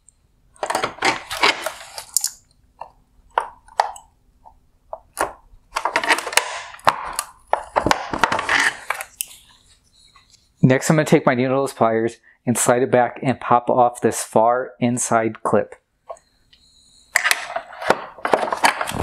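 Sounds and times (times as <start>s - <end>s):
pliers scraping and rubbing: 0.7s - 2.5s.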